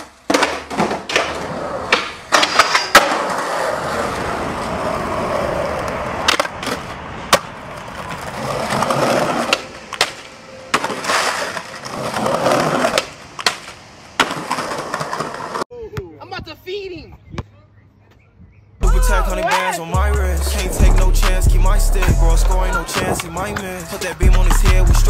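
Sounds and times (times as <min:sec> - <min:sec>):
skateboard tail pops and landings: 0:00.0 - 0:03.6, 0:12.7 - 0:15.6
skateboard grinding on a ledge: 0:00.0 - 0:13.6
skateboard wheels rolling on concrete: 0:00.0 - 0:15.7, 0:18.8 - 0:25.0.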